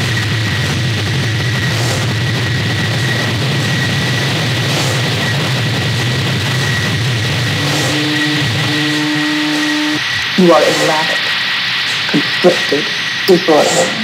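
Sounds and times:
loud steady hiss: 0:00.0 - 0:14.0
low hum: 0:00.0 - 0:14.0
high whistling tone: 0:07.6 - 0:14.0.

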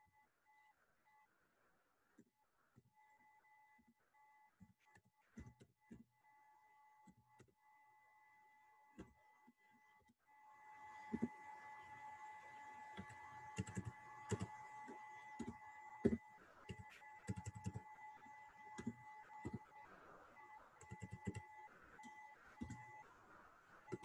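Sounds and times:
faint steady whine: 0:10.4 - 0:24.0
keyboard typing: 0:11.0 - 0:12.0, 0:12.8 - 0:19.8, 0:20.8 - 0:23.0.

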